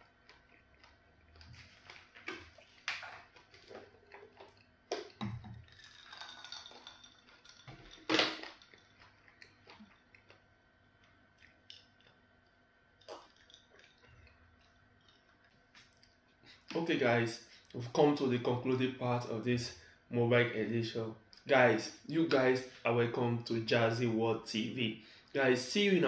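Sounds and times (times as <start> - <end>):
wet clicks of eating: 0.0 - 5.4, 8.4 - 16.8
drink poured into a glass: 5.0 - 9.0.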